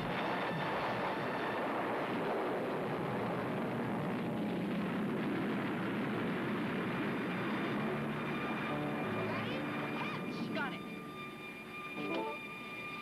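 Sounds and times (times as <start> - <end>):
roar of explosions and fire: 0.0 - 9.0.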